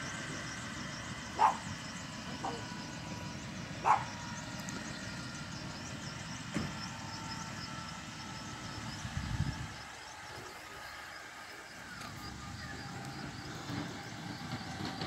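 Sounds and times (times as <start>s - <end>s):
helicopter turbine running: 0.0s - 15.0s
dog barking: 1.4s - 1.7s, 3.8s - 4.1s.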